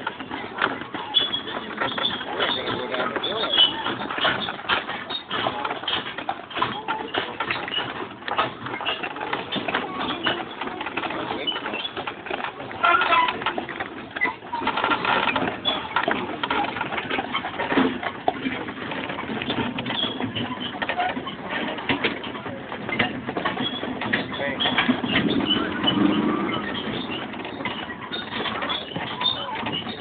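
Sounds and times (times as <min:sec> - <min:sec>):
harness jingling and creaking: 0:00.0 - 0:30.0
wagon rattling and clattering: 0:00.0 - 0:30.0.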